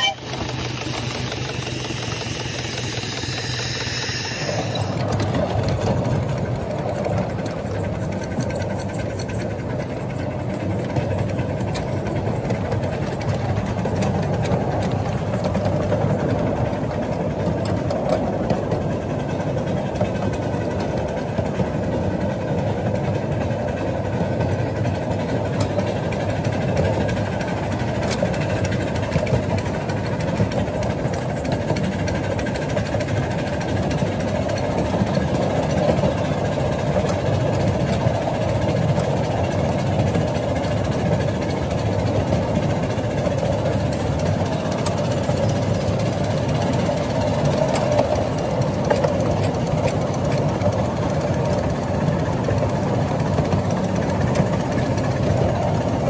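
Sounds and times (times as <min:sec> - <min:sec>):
miniature steam train running: 0:00.0 - 0:56.0.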